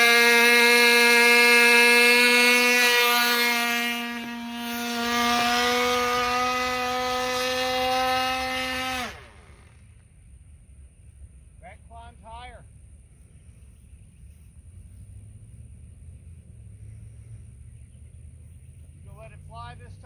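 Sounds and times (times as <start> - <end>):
model plane engine buzzing: 0.0 - 10.2.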